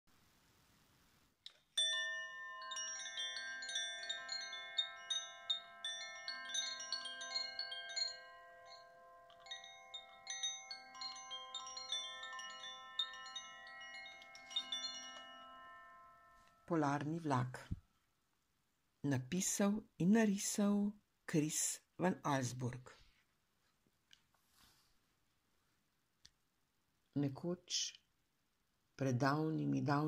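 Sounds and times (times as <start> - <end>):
chimes ringing: 1.7 - 17.7.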